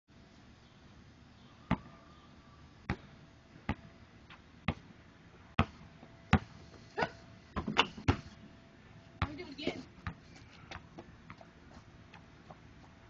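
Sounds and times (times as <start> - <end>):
basketball bouncing on concrete: 2.9 - 3.9, 5.6 - 6.5, 7.6 - 8.3, 9.2 - 11.5.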